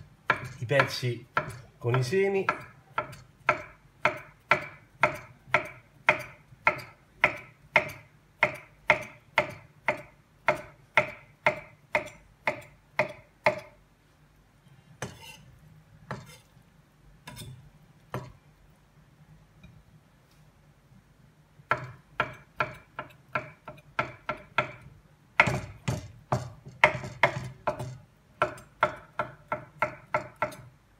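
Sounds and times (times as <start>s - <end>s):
knife chopping on wooden board: 0.2s - 13.7s, 15.0s - 15.4s, 16.1s - 16.5s, 21.7s - 30.7s.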